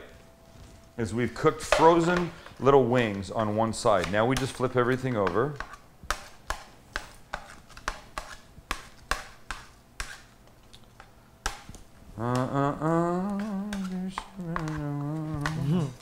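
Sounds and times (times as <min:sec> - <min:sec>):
wordless voice: 0:01.0 - 0:05.6, 0:12.2 - 0:16.0.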